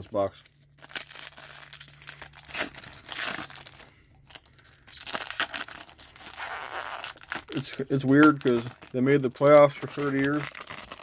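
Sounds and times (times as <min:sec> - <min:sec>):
foil wrapper crinkling and tearing: 0:00.0 - 0:11.0.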